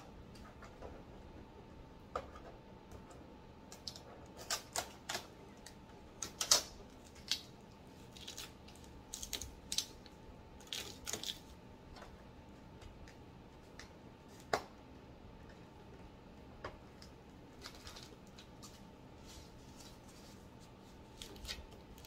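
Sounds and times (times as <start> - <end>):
packing tape crackling: 3.7 - 11.6, 16.9 - 20.3, 21.0 - 22.0.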